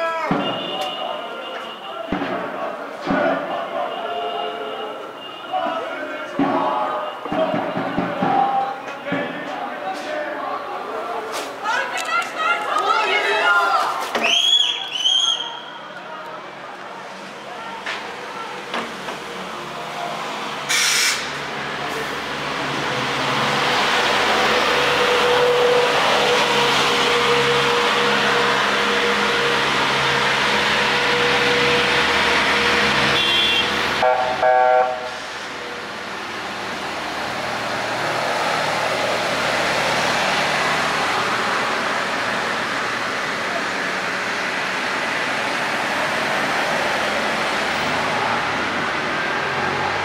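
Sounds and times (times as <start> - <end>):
truck horn blast: 0.3 - 2.1, 24.8 - 35.2
water cannon engine and spray: 20.7 - 21.2.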